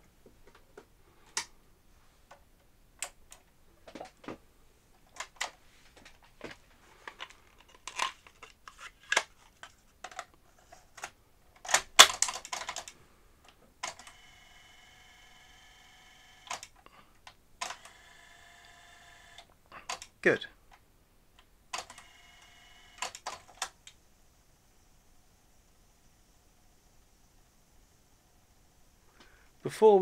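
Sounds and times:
faint steady tone: 12.9s - 30.0s.

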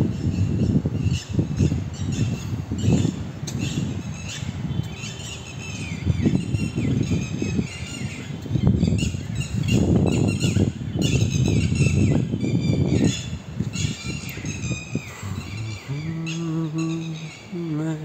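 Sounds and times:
birds chirping and calling: 0.0s - 18.0s
wind buffeting microphone: 0.0s - 18.0s.

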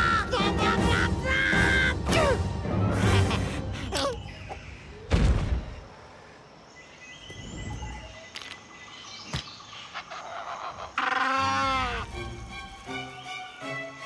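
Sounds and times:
background music: 0.0s - 4.3s, 11.0s - 14.0s
cartoon creature screaming: 11.0s - 12.1s.

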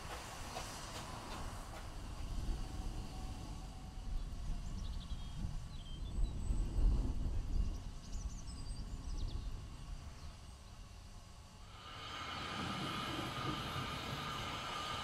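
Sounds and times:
steam train hissing: 0.0s - 4.8s, 9.6s - 15.0s.

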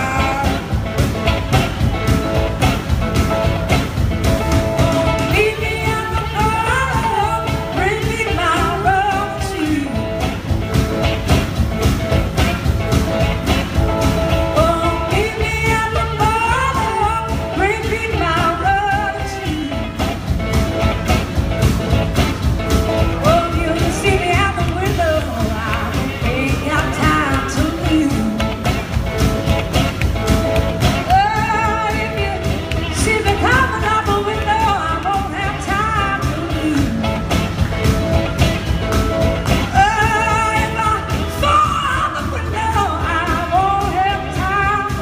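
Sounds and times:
woman singing: 0.0s - 2.2s, 2.8s - 10.4s, 14.0s - 20.7s, 23.0s - 28.9s, 30.3s - 37.7s, 39.4s - 45.0s
upright bass: 0.0s - 45.0s.

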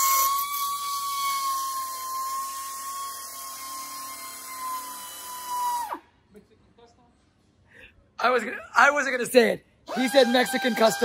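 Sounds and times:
rotary power tool whining: 0.0s - 6.0s, 9.9s - 11.0s.

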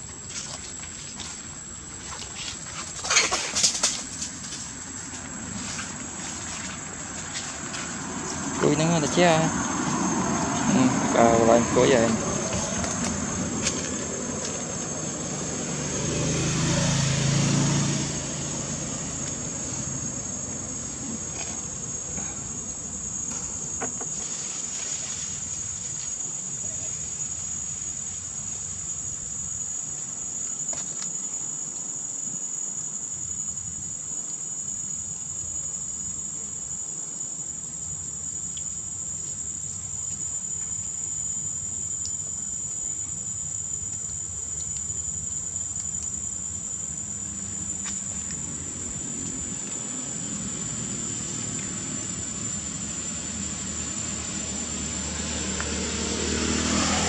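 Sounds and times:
insects droning: 0.0s - 57.0s
motor vehicle engine approaching: 3.7s - 24.3s, 44.0s - 57.0s.

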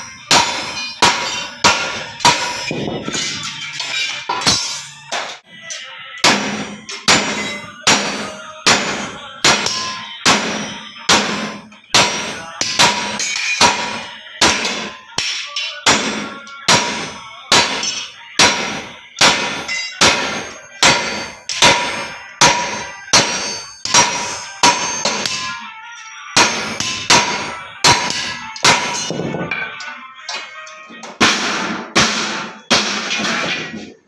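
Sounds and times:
hammer striking sheet metal: 0.0s - 5.4s, 6.2s - 25.6s, 26.4s - 34.0s.

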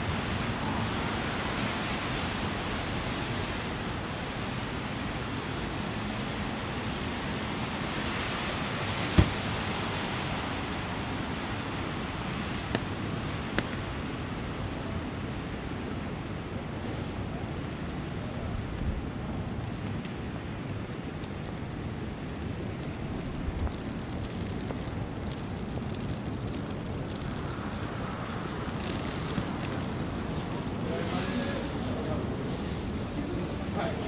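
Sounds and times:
traffic hiss on snowy roads: 0.0s - 34.0s
sharp knock: 9.2s - 9.4s.

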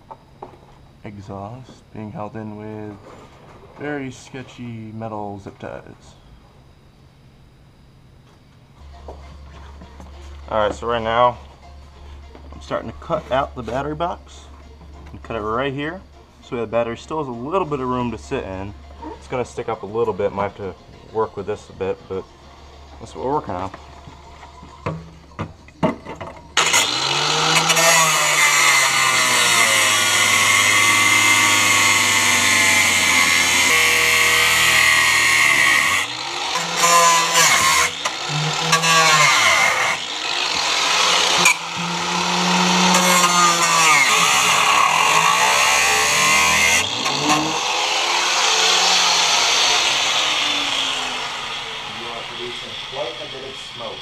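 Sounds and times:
grinder cutting steel: 26.6s - 54.0s.

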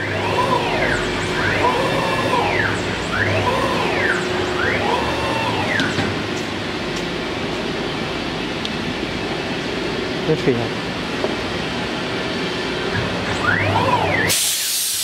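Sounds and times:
router motors whining: 0.0s - 6.2s
steady machine hum: 0.0s - 14.7s.

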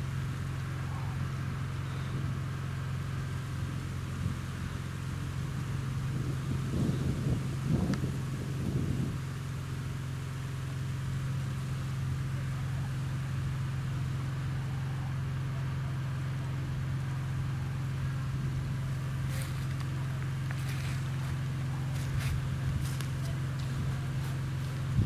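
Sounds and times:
vehicle engine running: 0.0s - 25.0s.

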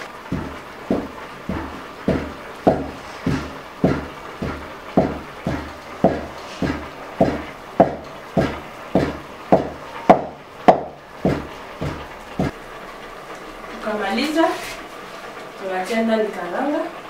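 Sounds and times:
wooden pestle pounding in mortar: 0.3s - 12.6s.

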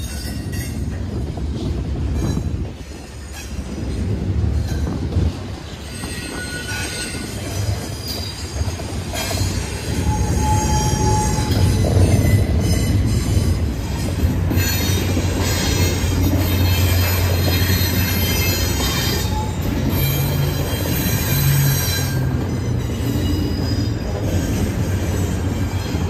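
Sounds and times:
freight train wheels rumbling: 0.0s - 26.0s
wheel squeal: 5.8s - 13.6s, 14.5s - 26.0s.

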